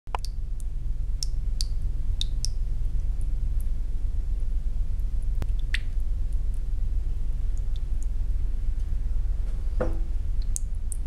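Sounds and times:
water dripping into basin: 0.1 - 3.7, 5.4 - 6.7, 7.5 - 8.2, 10.3 - 11.0
steady low hum: 0.1 - 11.0.

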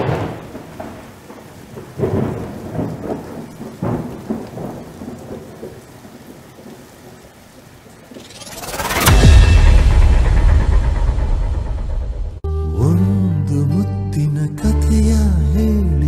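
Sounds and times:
thunder crashes and rumble: 0.0 - 7.0, 8.0 - 12.5
steady rain: 0.0 - 13.0.

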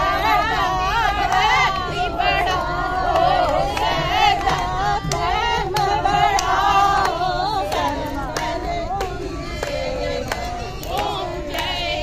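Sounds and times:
women singing together: 0.0 - 12.0
hands clapping in time: 2.6 - 12.0.

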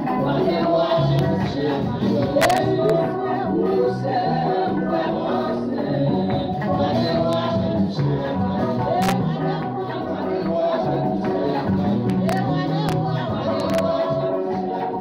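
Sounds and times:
bass line: 0.0 - 15.0
choir singing gospel: 0.0 - 15.0.

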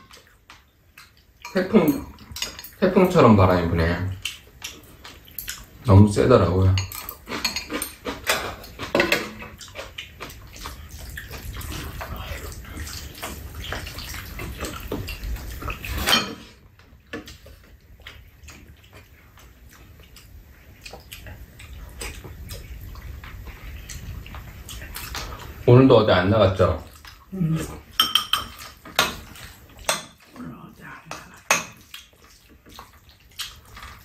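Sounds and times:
spoons clinking against bowls: 1.4 - 3.3, 6.7 - 9.3, 28.0 - 30.2.

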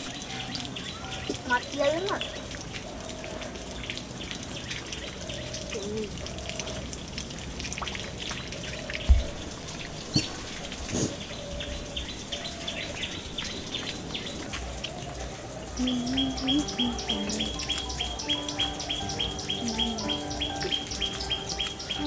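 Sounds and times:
birds chirping: 0.0 - 22.0
soft low thud: 9.0 - 9.5.

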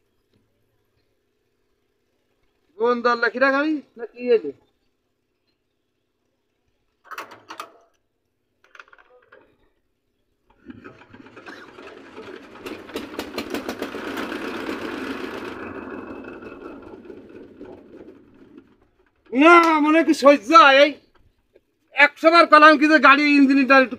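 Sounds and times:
diesel engine pulsing clatter: 10.6 - 20.6.

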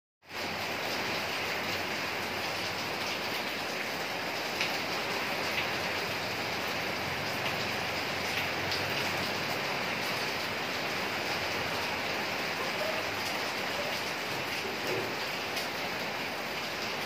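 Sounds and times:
steady rain falling: 0.2 - 17.0.

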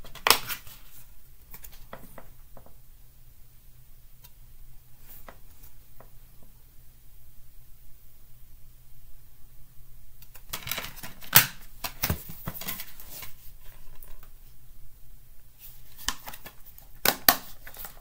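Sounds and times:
plastic case clicking and rustling: 10.3 - 13.4.

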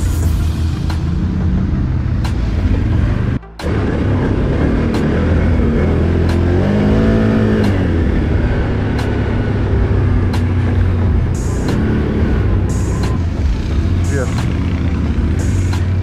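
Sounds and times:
quad bike engine running: 1.0 - 16.0.

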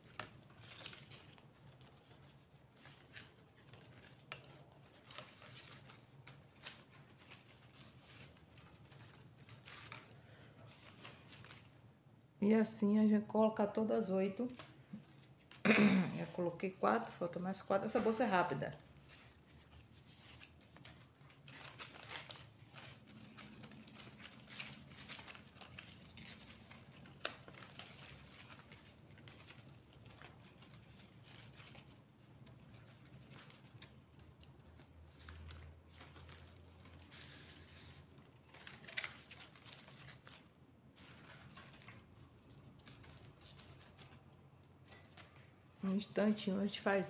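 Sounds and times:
dry fibre rustling: 0.0 - 47.0.

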